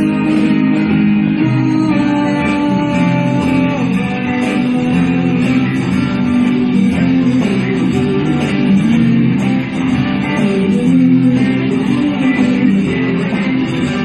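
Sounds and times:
live band playing guitars: 0:00.0 - 0:14.0.

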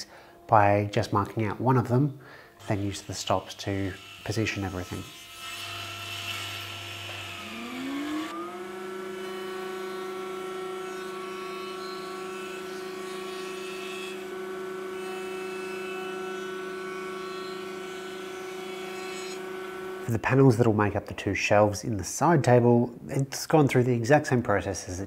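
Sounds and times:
router whine: 0:02.6 - 0:20.2.

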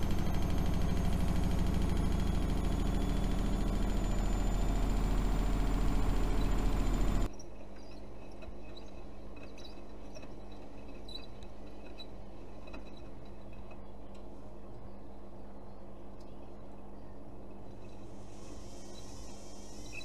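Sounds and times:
washing machine hum: 0:00.0 - 0:07.3.

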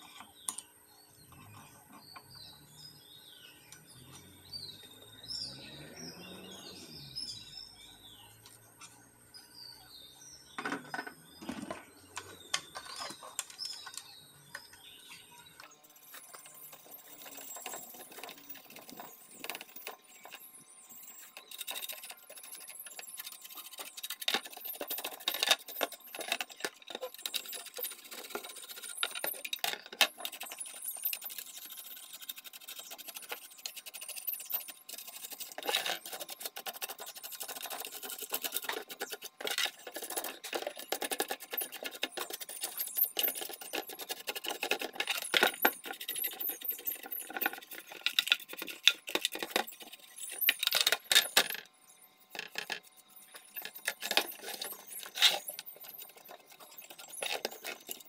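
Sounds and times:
brush scrubbing plastic: 0:16.0 - 0:20.5, 0:21.1 - 0:51.1, 0:52.4 - 0:58.0.

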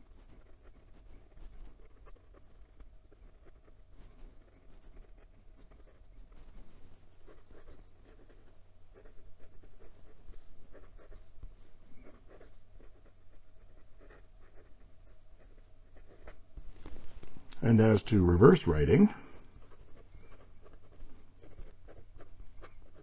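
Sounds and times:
fountain pen scratching paper: 0:07.3 - 0:11.2, 0:12.0 - 0:16.4, 0:19.7 - 0:23.0.

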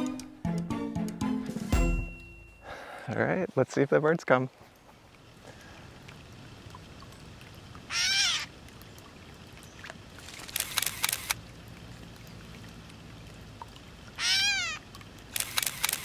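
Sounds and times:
bird mewing call: 0:07.9 - 0:08.5, 0:14.2 - 0:14.8
camera shutter clicks: 0:10.2 - 0:11.4, 0:15.3 - 0:16.0.

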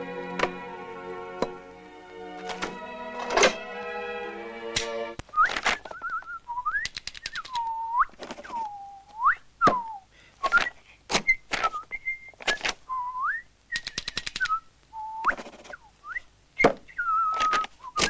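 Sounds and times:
rapid clicking: 0:06.8 - 0:07.6.

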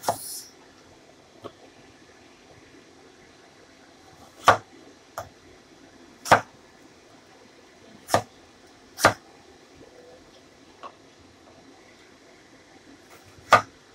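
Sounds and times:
cleaver chopping on wooden board: 0:06.3 - 0:06.5, 0:09.0 - 0:09.2.

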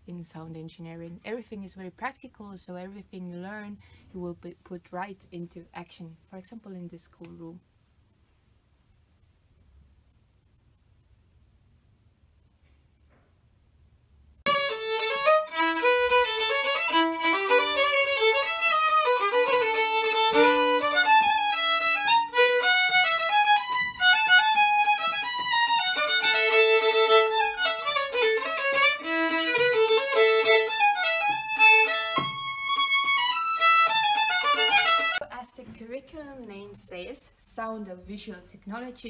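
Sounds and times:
solo violin melody: 0:14.5 - 0:35.2.

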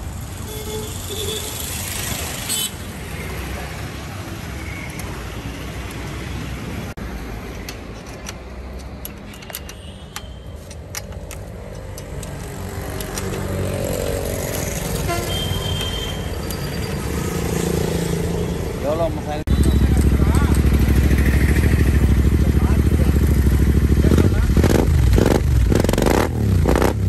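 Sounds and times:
road traffic rumbling: 0:00.0 - 0:27.0
vehicle horns tooting: 0:00.4 - 0:01.6, 0:15.0 - 0:16.9.

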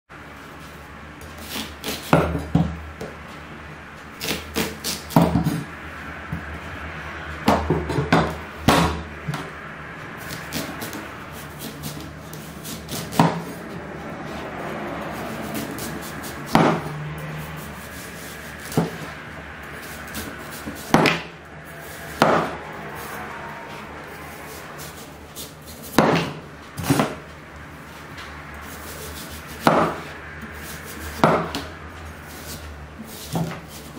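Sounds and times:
knife slicing watermelon rind: 0:01.3 - 0:02.6, 0:04.2 - 0:05.7, 0:10.2 - 0:14.5, 0:15.1 - 0:19.2, 0:19.8 - 0:23.2, 0:24.4 - 0:27.2, 0:28.6 - 0:33.9.

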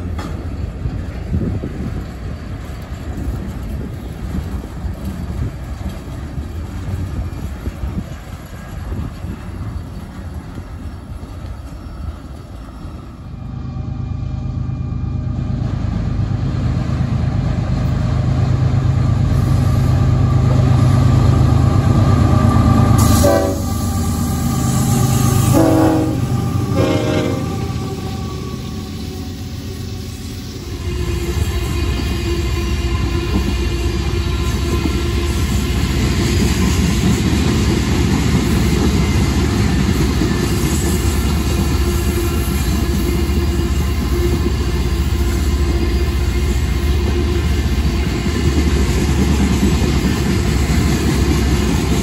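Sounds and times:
diesel locomotive drone: 0:00.0 - 0:52.0
locomotive air horn blasts: 0:23.0 - 0:28.7.

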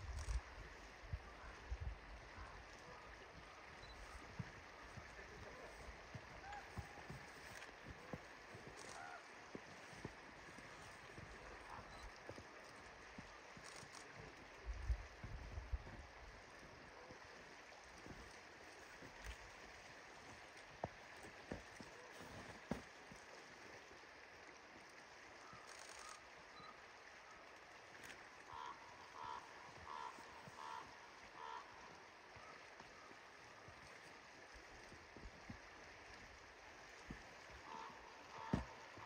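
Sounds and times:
river flowing: 0:00.0 - 0:39.0
ravens calling: 0:06.4 - 0:09.4, 0:28.5 - 0:31.8, 0:37.6 - 0:39.0.

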